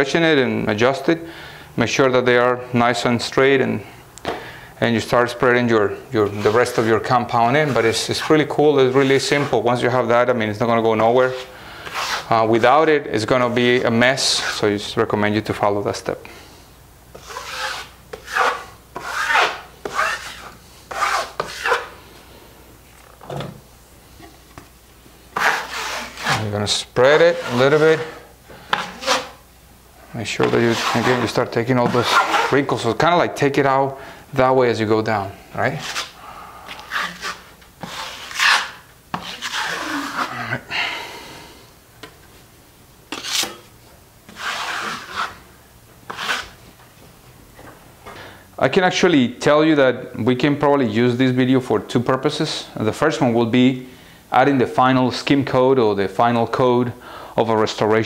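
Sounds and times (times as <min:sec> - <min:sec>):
drywall knife scraping plaster: 0:06.2 - 0:09.6, 0:11.0 - 0:12.7, 0:17.1 - 0:22.0, 0:25.4 - 0:26.5, 0:27.1 - 0:29.4, 0:30.4 - 0:32.7, 0:35.8 - 0:40.4, 0:43.1 - 0:43.6, 0:44.3 - 0:45.4, 0:46.1 - 0:46.6.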